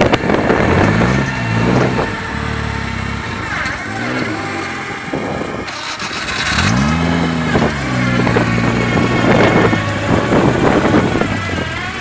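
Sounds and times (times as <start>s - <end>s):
buggy engine revving: 0.0s - 12.0s.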